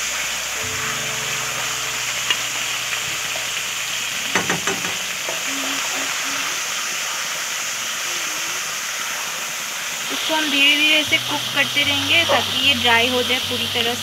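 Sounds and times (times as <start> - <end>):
paste sizzling in hot oil: 0.0 - 14.0
spatula tapping pan: 4.2 - 5.5.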